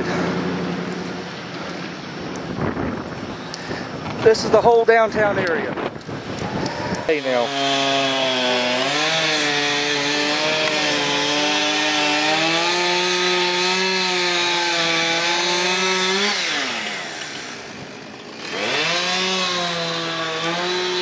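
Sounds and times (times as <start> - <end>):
chainsaw revving: 6.6 - 21.0.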